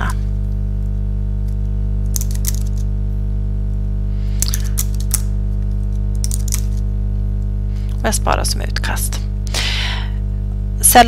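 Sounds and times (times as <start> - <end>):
electrical mains hum: 0.0 - 11.0
computer keyboard typing: 2.1 - 2.9, 6.2 - 6.8.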